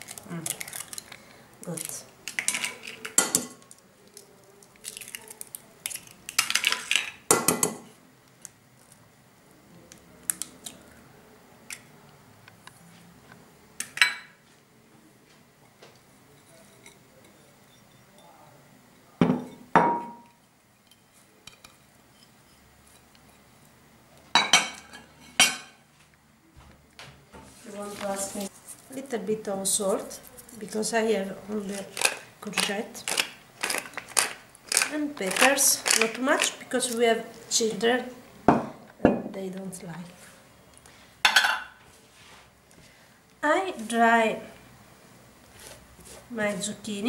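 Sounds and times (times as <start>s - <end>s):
eggs cracking on bowl: 0.0s - 7.8s, 31.7s - 37.0s.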